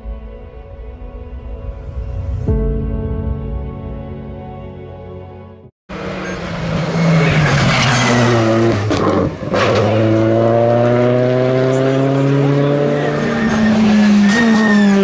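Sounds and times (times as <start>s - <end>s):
rally car engine accelerating: 5.9s - 15.0s.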